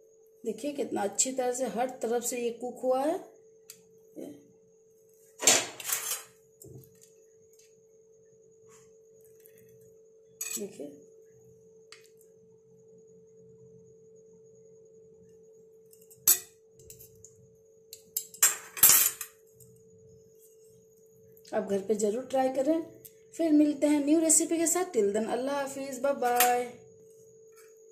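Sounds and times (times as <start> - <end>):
cutlery clinking on ceramic plate: 10.4 - 10.7, 18.2 - 19.4.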